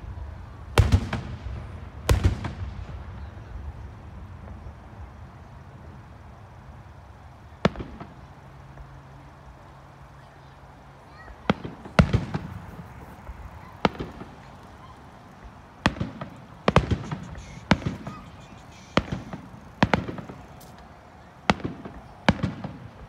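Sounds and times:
fireworks bangs echoing: 0.7 - 5.0, 7.5 - 9.0, 11.1 - 23.0.

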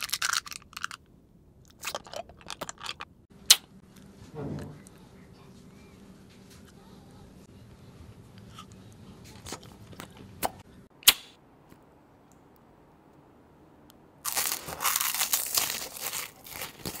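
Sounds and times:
candy biting and crunching: 14.2 - 17.0.

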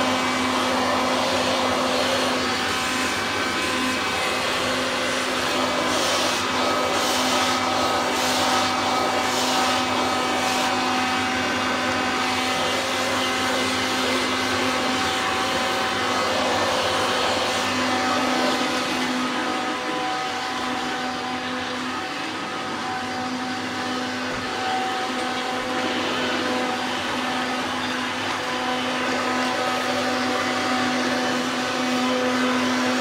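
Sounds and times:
vacuum cleaner running: 0.0 - 33.0.

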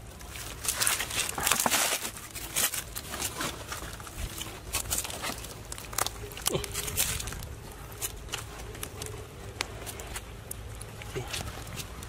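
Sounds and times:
hands digging through wet mud: 0.0 - 12.0
twigs and leaves crackling: 0.0 - 12.0.

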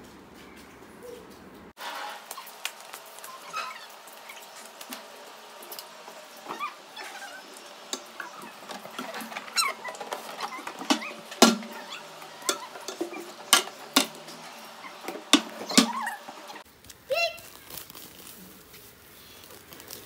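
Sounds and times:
shoes knocking on wooden shelves: 8.0 - 16.5.

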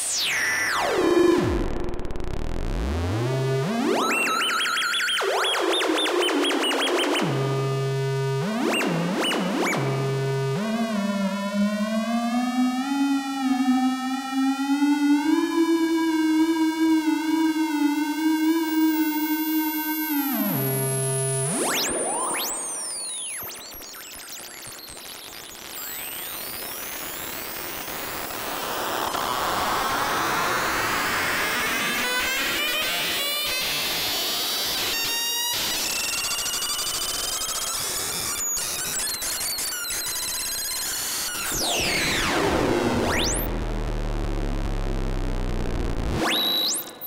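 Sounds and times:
swooping electronic chirps: 36.0 - 43.5, 46.2 - 47.0
high-pitched electronic whistles: 46.2 - 47.0.

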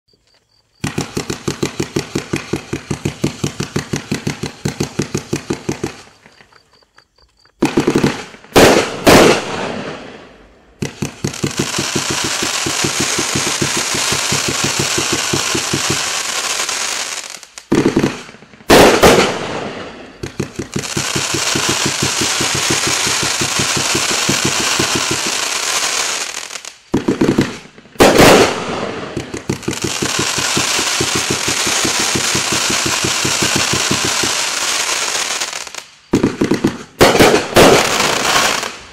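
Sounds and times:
rapid-fire firework shots: 0.8 - 6.3, 7.6 - 10.2, 10.8 - 38.9
heavy firework bangs: 7.6 - 38.9
firework crackling hiss: 7.7 - 38.9.

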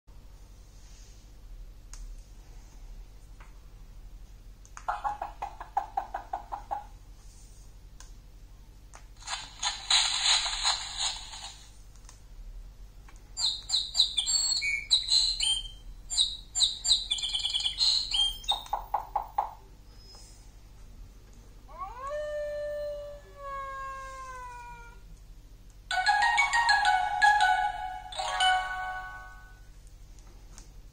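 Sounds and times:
birds chirping and twittering: 13.4 - 19.2.

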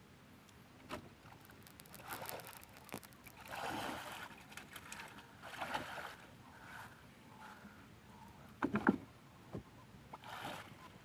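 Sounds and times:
water splashing: 1.2 - 6.8
swamp plants rustling: 1.3 - 5.9.

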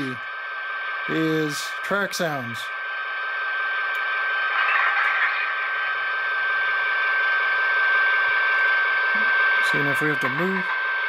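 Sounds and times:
steady high tone: 0.0 - 11.0
model train diesel engine sound: 0.9 - 2.6.

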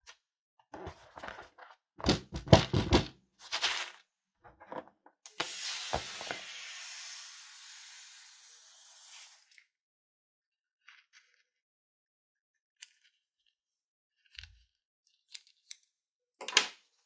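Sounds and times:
air hissing out of balloon: 5.3 - 9.5.

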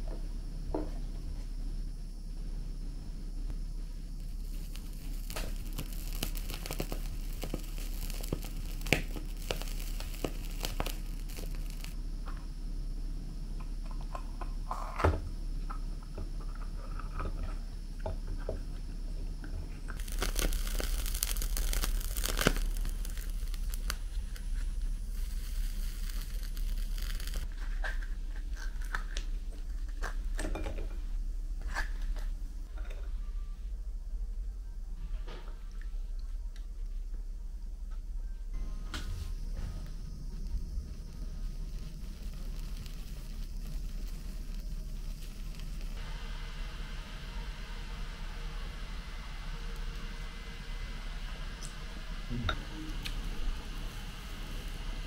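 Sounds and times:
gas burner hissing: 0.0 - 36.1, 38.4 - 55.0
squid crackling: 4.2 - 12.0, 20.0 - 29.9, 40.0 - 46.0
dry crinkly tearing: 4.4 - 12.0, 20.0 - 30.1, 41.7 - 46.0.

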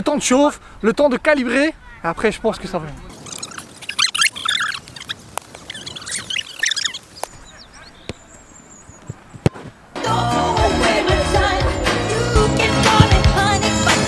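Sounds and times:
small birds chirping: 1.8 - 10.0
football kicked hard thud: 9.4 - 9.8, 12.9 - 13.4.

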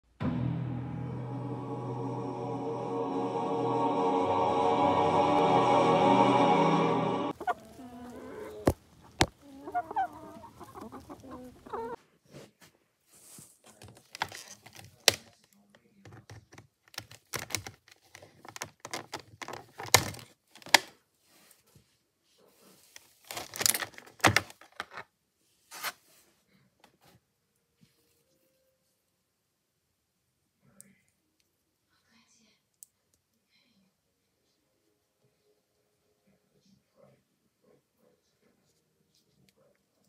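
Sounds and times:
hen clucking: 7.3 - 12.0
packaging rustling: 23.0 - 25.0.

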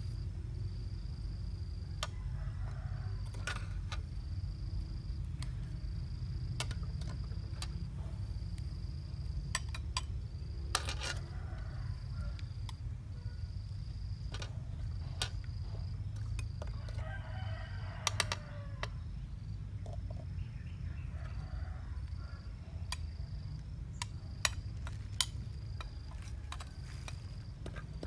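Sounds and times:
rooster crowing: 1.8 - 3.8, 10.9 - 12.6, 16.6 - 19.0, 20.8 - 22.8.

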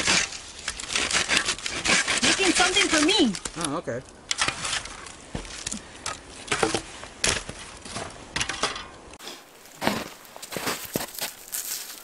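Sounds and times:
bow saw rasping through branch: 0.0 - 3.2.

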